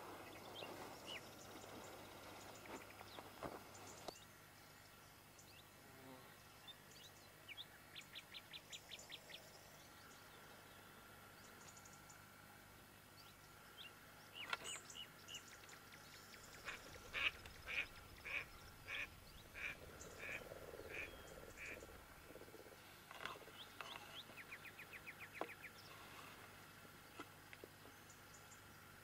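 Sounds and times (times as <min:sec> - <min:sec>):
harsh bird calls: 0:16.4 - 0:26.3.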